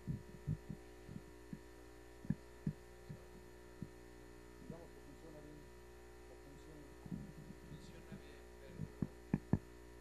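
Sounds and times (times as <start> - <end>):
dull low thumps: 0.0 - 4.0
electrical mains hum: 0.0 - 10.0.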